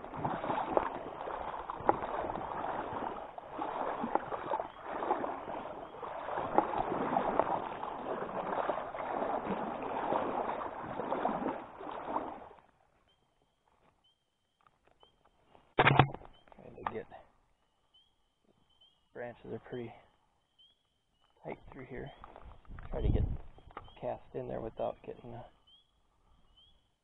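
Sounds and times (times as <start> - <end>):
wading through a stream: 0.0 - 14.0.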